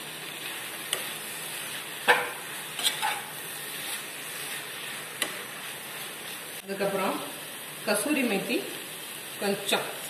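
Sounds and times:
vegetables sizzling in a frying pan: 0.0 - 10.0
metal spatula scraping a pan: 0.4 - 6.6.

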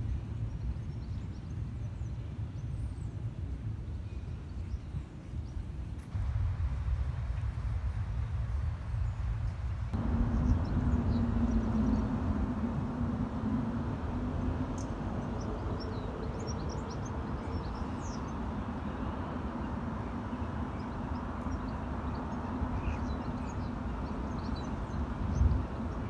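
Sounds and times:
low rumble: 6.2 - 17.4
faint hum: 6.2 - 26.0
small birds chirping: 8.9 - 12.4, 14.4 - 26.0.

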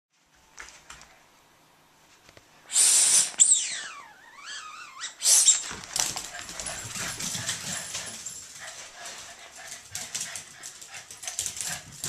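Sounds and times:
dog whining: 2.7 - 5.7
dogs scuffling and claws clicking: 5.6 - 12.0
dogs barking excitedly: 5.8 - 12.0.

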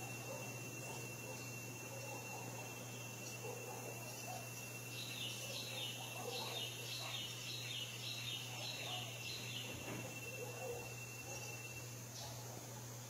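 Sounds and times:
bird chirping: 3.2 - 12.4.

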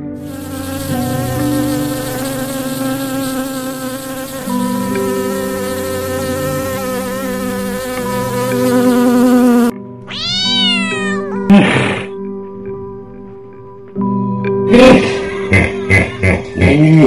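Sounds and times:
background music: 0.0 - 17.0
insect buzzing: 0.1 - 9.8.

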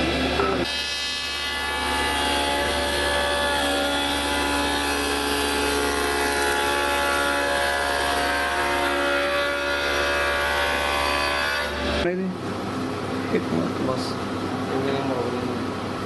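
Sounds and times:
spindle moulder cutting wood: 0.6 - 11.9.

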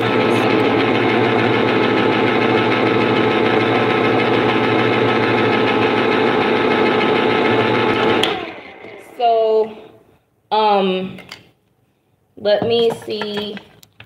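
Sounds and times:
electric can opener motor humming: 0.0 - 9.7.

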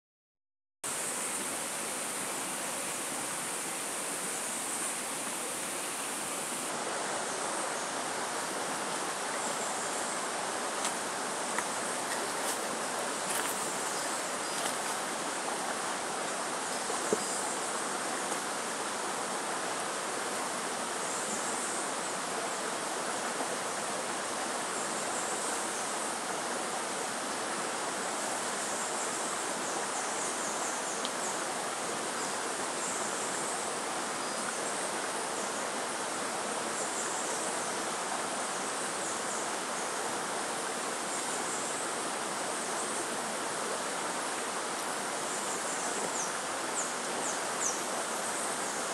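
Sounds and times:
faint high insect calls: 0.9 - 48.9.

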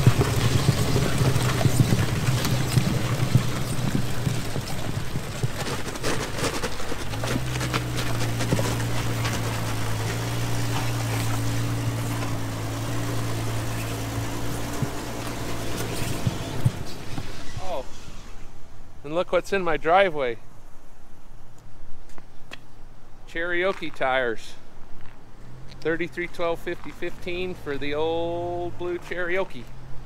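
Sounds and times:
small knocks and rattles: 0.0 - 17.3
car engine and tyre noise: 0.0 - 30.0.

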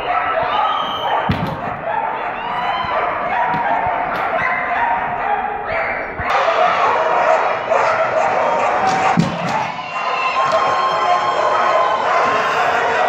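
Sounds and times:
dogs barking and yipping: 0.0 - 13.0
people shouting: 0.0 - 13.0
thump: 1.3 - 1.9, 8.9 - 9.8.

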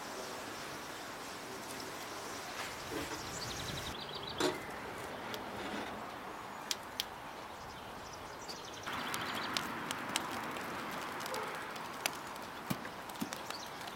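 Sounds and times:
loud steady hiss: 0.0 - 4.0
metal clank of closing firebox: 4.4 - 4.7.

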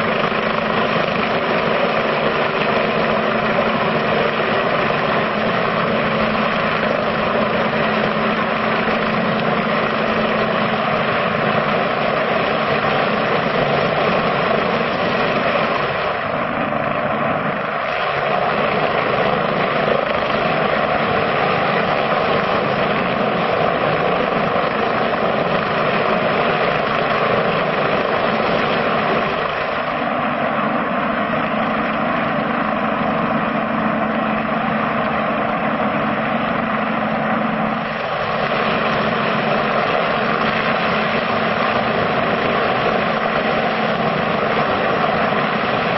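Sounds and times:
helicopter hovering: 0.0 - 45.9.

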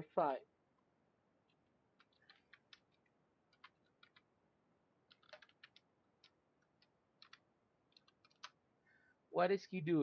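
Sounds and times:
computer keyboard typing: 2.0 - 4.3, 5.0 - 8.6.

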